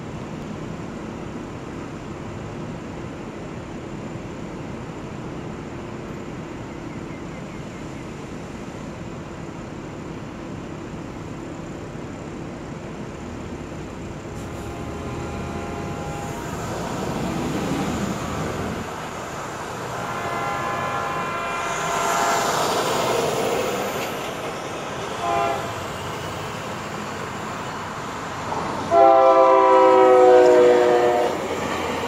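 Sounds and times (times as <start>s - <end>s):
train horn blasts: 14.4s - 23.2s, 25.1s - 26.0s, 28.9s - 31.5s.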